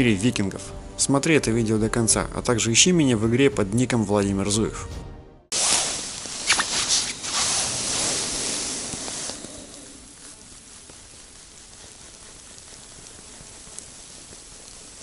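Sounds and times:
snow and clothing rustling: 5.5 - 15.0
steady soft hiss: 5.6 - 15.0.

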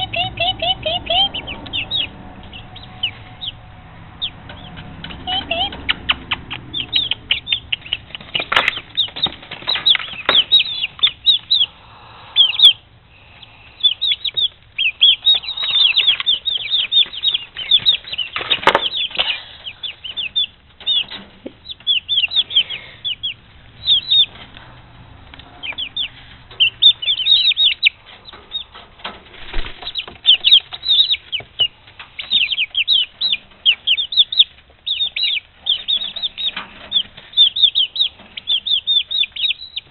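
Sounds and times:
chicks peeping: 0.0 - 39.9
wing flutters and rustles: 28.2 - 31.4.

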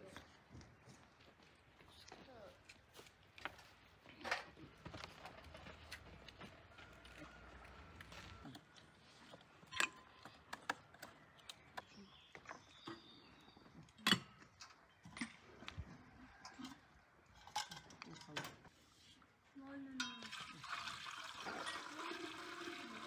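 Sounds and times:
birds chirping faintly: 6.5 - 16.7.

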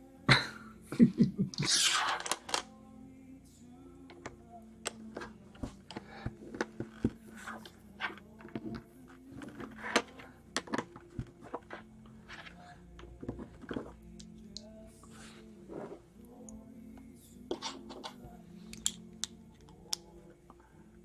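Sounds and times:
plastic bricks clicking: 1.7 - 2.7, 17.6 - 20.0.

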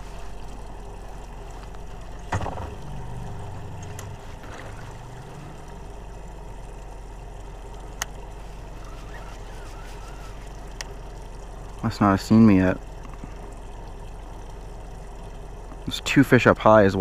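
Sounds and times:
boat engine low hum: 0.0 - 17.0
thump: 2.3 - 2.8.

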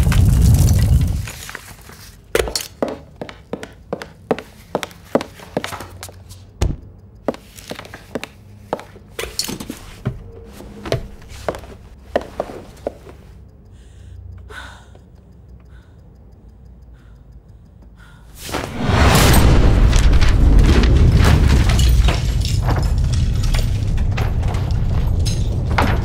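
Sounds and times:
footsteps on hard floor: 1.4 - 9.1, 9.8 - 13.3.

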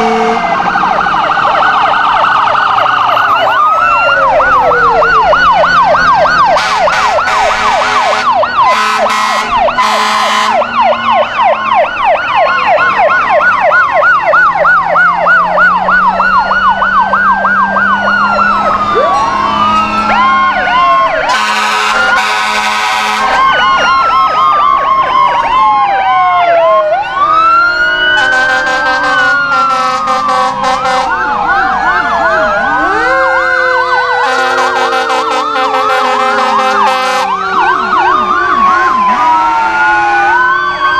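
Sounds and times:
loud horn blasts: 0.0 - 0.6, 6.5 - 10.8, 21.3 - 23.5, 28.2 - 31.2, 34.2 - 37.4
fire engine sirens: 0.0 - 40.9.

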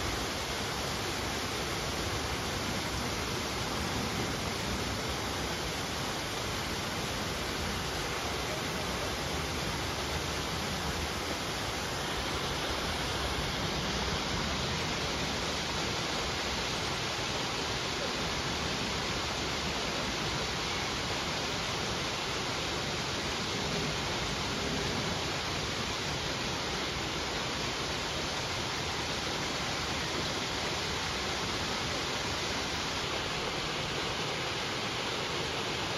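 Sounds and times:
waterfall splashing over rocks: 0.0 - 35.9.

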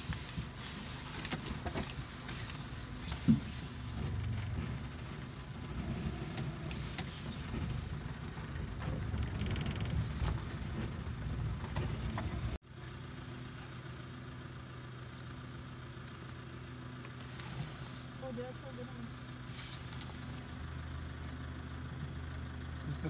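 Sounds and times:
vehicle engine rumbling: 0.0 - 23.0.

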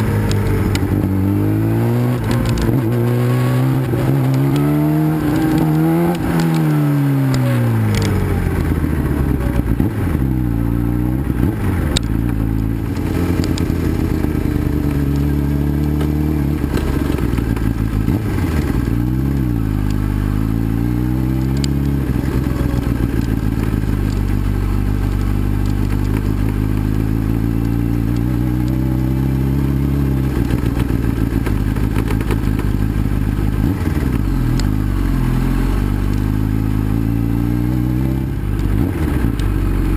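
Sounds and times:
motorcycle engine revving: 0.0 - 39.9
gravel clatter and knocks: 12.0 - 19.0, 21.5 - 28.8, 30.4 - 34.7.

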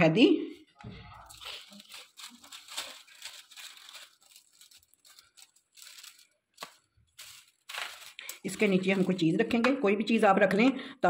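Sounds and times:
paper rustling and crinkling: 0.8 - 9.3.

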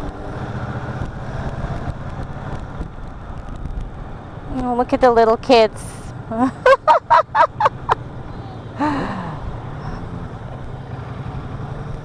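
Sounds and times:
motorcycle drone: 0.0 - 12.0
wind: 0.0 - 12.0
person laughing: 6.3 - 9.4
breathy sigh: 8.3 - 10.0.

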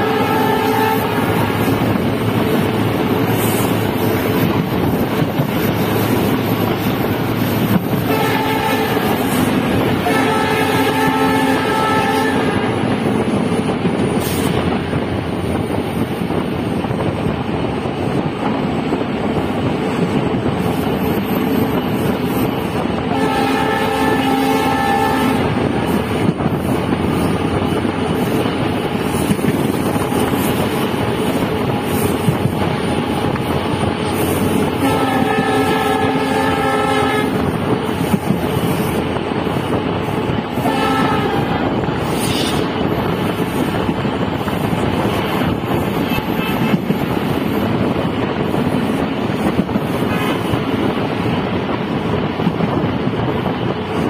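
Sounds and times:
locomotive horn blasts: 0.0 - 1.5, 7.9 - 12.8, 23.0 - 25.7, 34.8 - 37.5, 40.5 - 41.8, 46.0 - 46.9
train running at speed: 0.0 - 54.0
wind at open window: 0.0 - 54.0.

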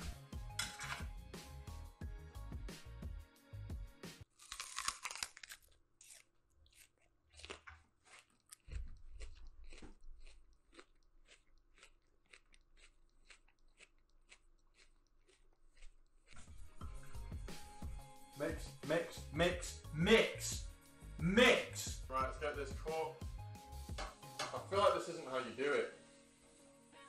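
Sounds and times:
person biting crunchy food: 4.3 - 16.6
person chewing: 4.3 - 18.1.

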